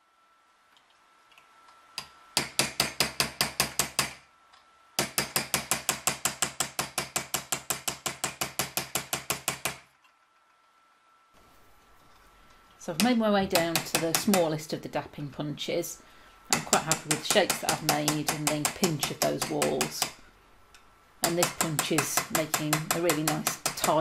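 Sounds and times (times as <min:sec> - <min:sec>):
hammer striking metal punch: 0:02.0 - 0:04.2, 0:05.0 - 0:09.8.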